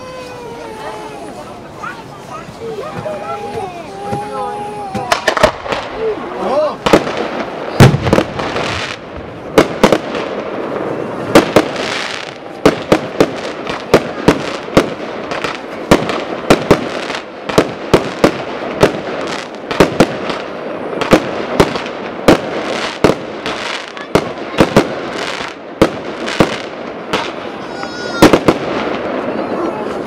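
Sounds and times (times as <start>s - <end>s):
fireworks bursting with sharp bangs: 0.0s - 30.0s
fireworks hiss: 0.0s - 30.0s.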